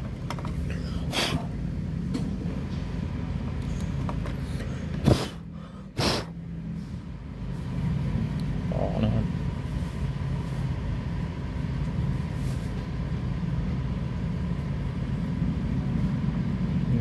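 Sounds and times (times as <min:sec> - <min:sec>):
low background rumble: 0:00.0 - 0:17.0
puffs of breath: 0:00.7 - 0:01.5, 0:04.4 - 0:07.1.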